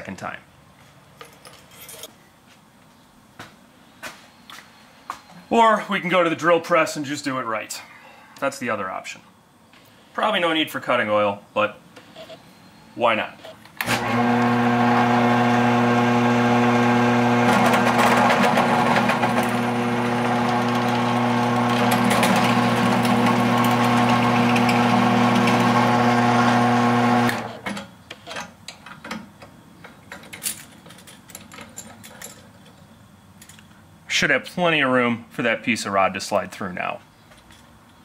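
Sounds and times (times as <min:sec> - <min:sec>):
drill press motor humming: 0:13.8 - 0:27.6
drill bit cutting metal: 0:13.9 - 0:27.5.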